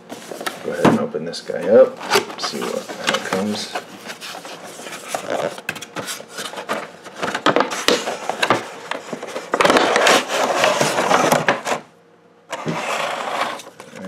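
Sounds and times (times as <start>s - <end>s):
paper and cardboard rustling: 0.0s - 11.9s.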